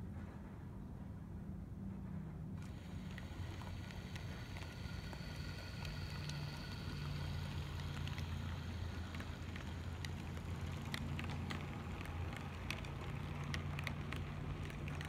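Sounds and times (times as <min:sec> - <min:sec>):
faint high motor whine: 0:00.0 - 0:15.0
light clicks of wheels on joints: 0:02.0 - 0:15.0
model train wheels rumbling on rail: 0:02.0 - 0:15.0.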